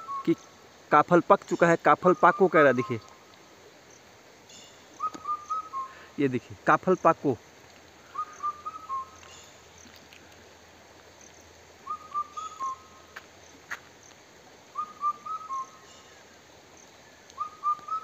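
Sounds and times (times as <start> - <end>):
cuckoo calling: 0.0 - 0.5, 1.4 - 3.3, 4.5 - 6.2, 8.0 - 10.3, 11.8 - 13.2, 14.7 - 18.0.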